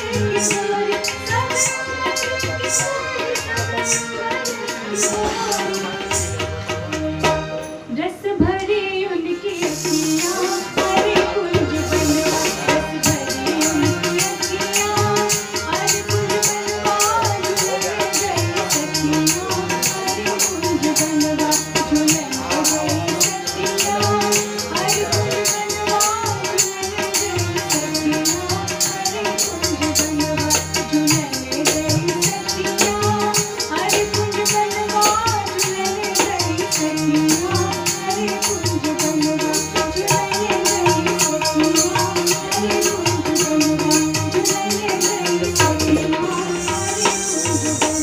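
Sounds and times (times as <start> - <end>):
tabla: 0.0 - 48.0
person singing: 8.4 - 48.0
jingling percussion: 9.7 - 48.0.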